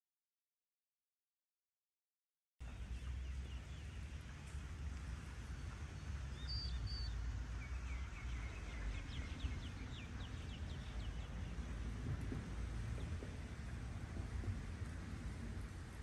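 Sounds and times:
birds calling: 2.6s - 11.9s
low steady rumble: 2.6s - 16.0s.

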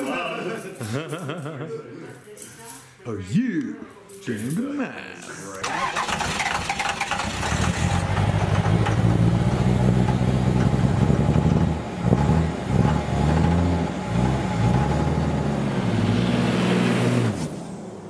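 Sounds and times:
engine running and revving: 6.8s - 17.8s.

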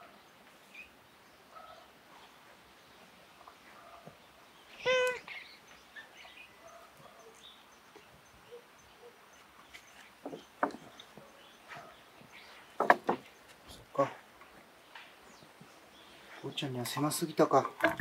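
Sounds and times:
knocks and scrapes on wooden fence: 9.7s - 13.7s.

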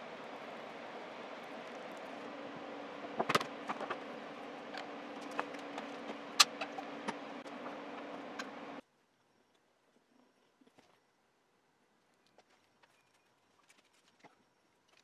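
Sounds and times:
background hum: 0.0s - 15.0s.

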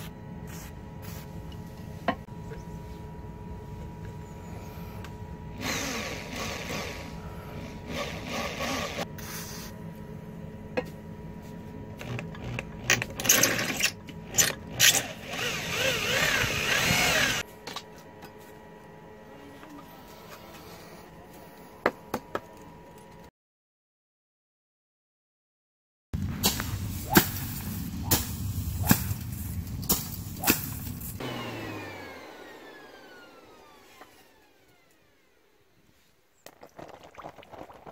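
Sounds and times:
electric drill boring through steel: 5.6s - 9.1s, 12.0s - 17.4s.

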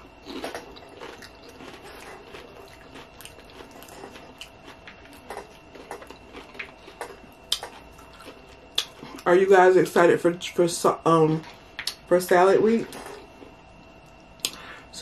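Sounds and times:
person chewing: 0.0s - 9.3s.

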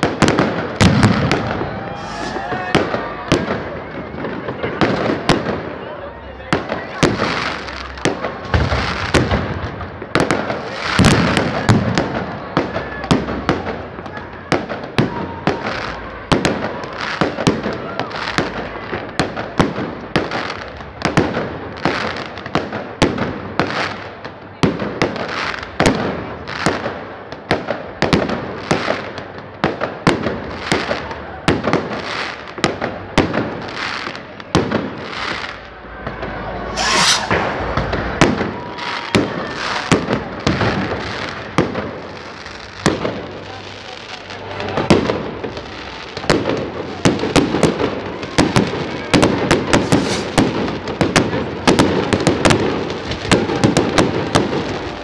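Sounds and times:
firework crackle: 0.0s - 55.0s
firework shells bursting: 0.8s - 3.5s, 36.6s - 39.1s, 49.8s - 50.4s.

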